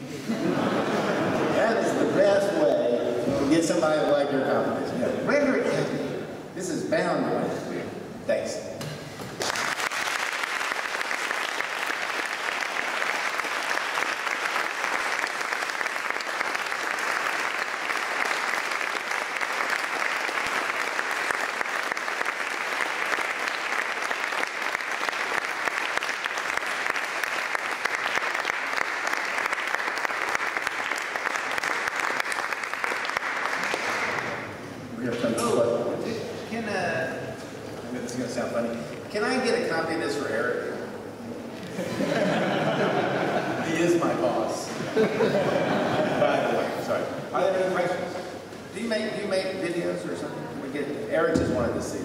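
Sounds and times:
audience applauding: 0:09.3 - 0:34.6.

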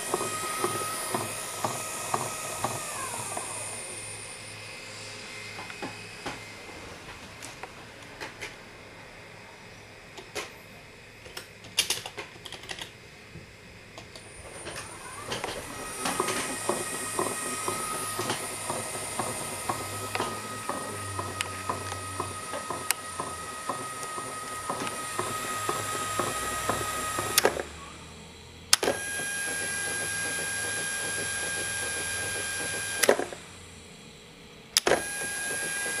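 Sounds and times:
electric motor whine: 0:00.0 - 0:11.3, 0:13.3 - 0:36.0
light motor clicks: 0:14.0 - 0:27.8, 0:28.7 - 0:33.4, 0:34.7 - 0:36.0.

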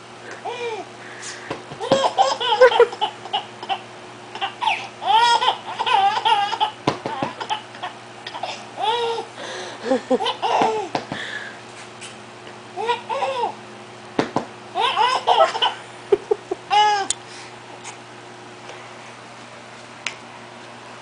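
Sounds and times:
baby laughing: 0:01.8 - 0:09.3, 0:09.9 - 0:10.9, 0:12.8 - 0:13.6, 0:14.8 - 0:17.1.

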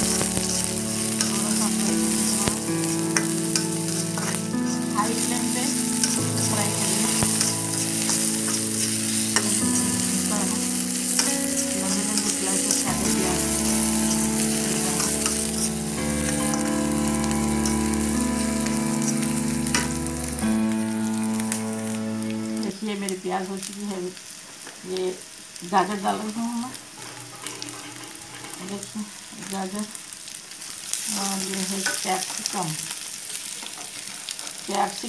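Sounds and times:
onions sizzling in hot oil: 0:00.0 - 0:35.0
metal spoon scraping pan: 0:00.1 - 0:04.4, 0:06.0 - 0:13.3, 0:27.0 - 0:28.8.

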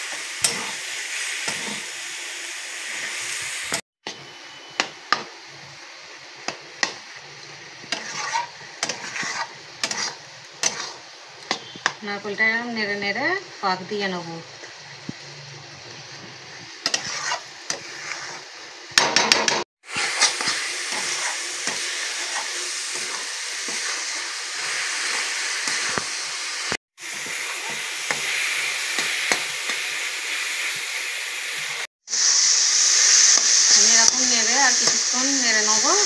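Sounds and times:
sizzling in hot pan: 0:00.0 - 0:36.0
metal spatula scraping pan: 0:07.9 - 0:11.9, 0:16.8 - 0:18.5, 0:19.2 - 0:24.2.

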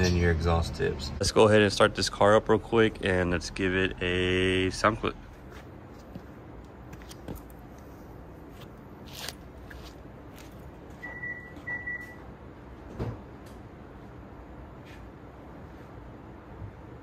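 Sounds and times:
footsteps: 0:05.3 - 0:11.7
short electronic beeps: 0:11.0 - 0:12.2.

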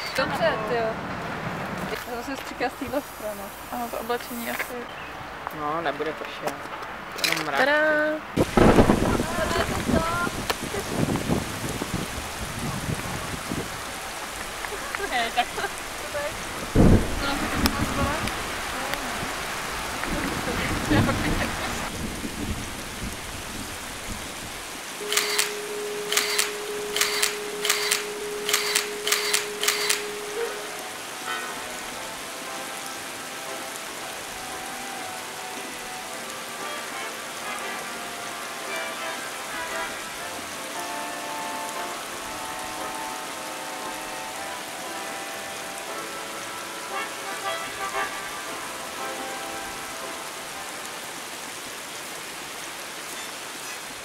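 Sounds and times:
rain-like hiss: 0:00.0 - 0:54.0
camera shutter clicking: 0:25.0 - 0:30.1
soft sustained music tones: 0:25.0 - 0:51.4.

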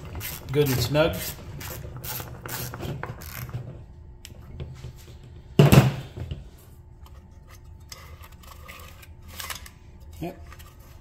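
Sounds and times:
pulley clicking and scraping: 0:00.0 - 0:03.5.

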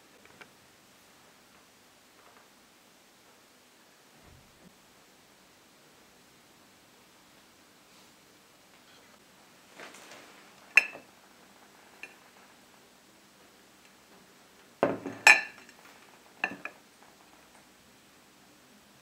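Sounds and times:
ceramic plates clinking: 0:10.7 - 0:11.1, 0:14.8 - 0:15.8, 0:16.4 - 0:16.8.

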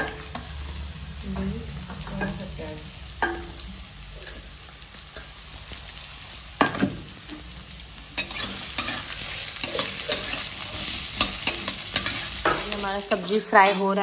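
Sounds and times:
vegetables sizzling in oil: 0:00.0 - 0:14.0
spatula scraping pan: 0:08.2 - 0:14.0.

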